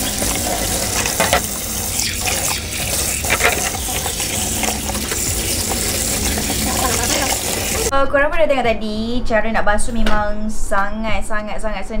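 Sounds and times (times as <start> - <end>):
tap running into steel sink: 0.0 - 7.9
water splashing off objects: 0.0 - 7.9.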